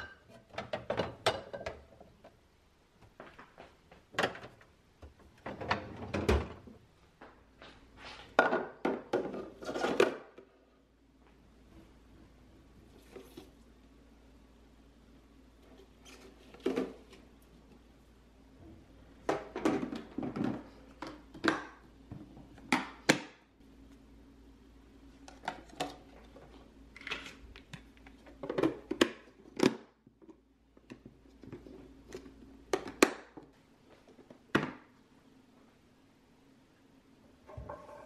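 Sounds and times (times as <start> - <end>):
plastic containers clicking and knocking: 19.2 - 23.4, 32.7 - 33.5.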